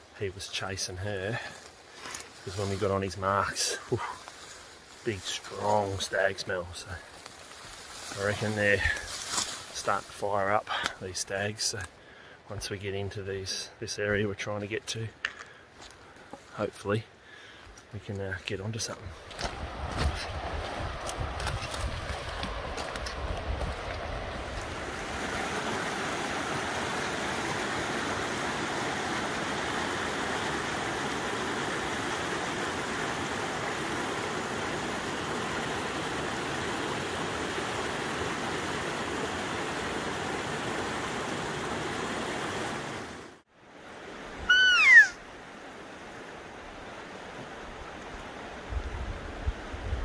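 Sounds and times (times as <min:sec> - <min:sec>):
creek rushing: 0:00.0 - 0:12.0, 0:15.2 - 0:50.0
loud falling cry: 0:44.5 - 0:45.2.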